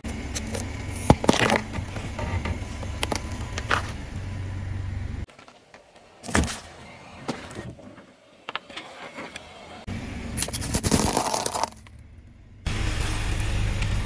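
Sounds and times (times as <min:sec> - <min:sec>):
car low hum: 0:00.0 - 0:05.3, 0:09.3 - 0:14.0
tyre crushing squash crack: 0:10.4 - 0:11.8.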